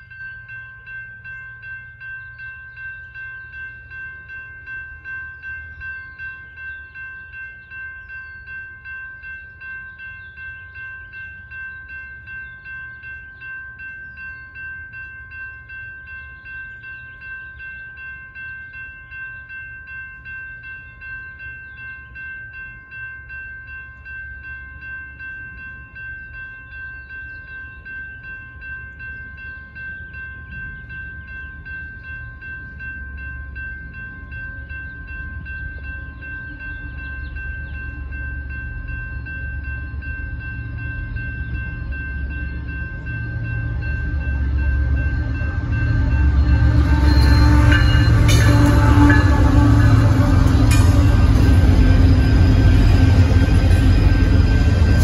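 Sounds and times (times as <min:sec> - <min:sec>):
low rumble of approaching train: 0:00.0 - 0:55.0
railroad crossing bells ringing: 0:00.0 - 0:55.0.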